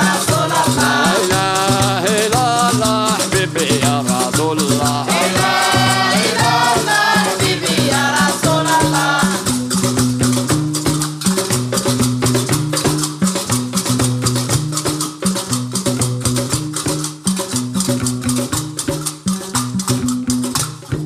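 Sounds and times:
plucked lute bass line: 0.0 - 7.1
people singing: 0.0 - 9.6.

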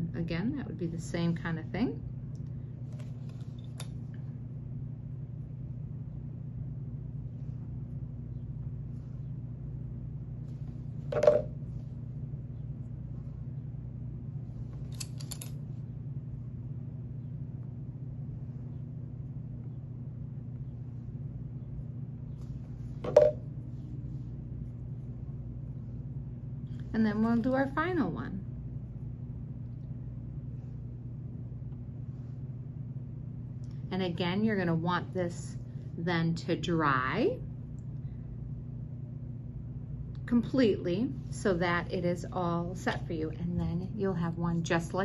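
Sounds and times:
low electrical hum: 0.0 - 45.0
wooden sticks tapping on table: 11.1 - 11.5, 23.1 - 23.4.

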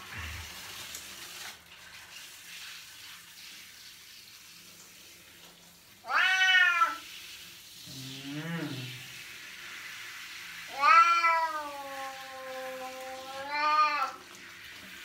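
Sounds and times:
hand shower water hissing: 0.0 - 15.0
cat meowing: 6.0 - 7.0, 10.7 - 14.2.

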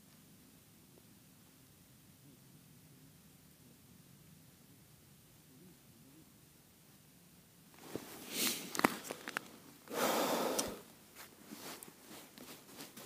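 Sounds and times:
jacket rustling: 7.8 - 9.6, 11.1 - 13.0.

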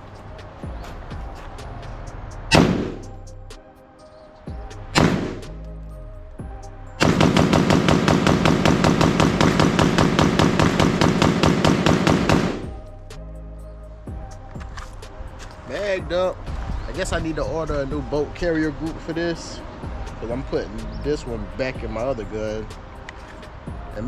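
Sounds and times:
rifle shots: 2.5 - 3.0, 5.0 - 5.5, 7.0 - 12.7.

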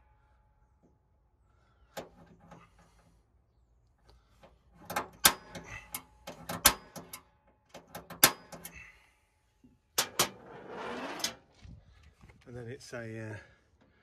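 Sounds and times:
handling clicks and rattles: 4.4 - 8.8
pin punch striking metal: 4.9 - 7.2, 7.8 - 8.7.

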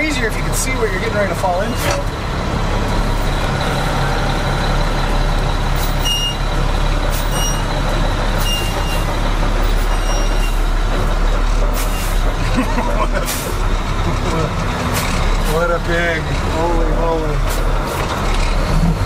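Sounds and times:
truck diesel engine running: 0.0 - 19.0.

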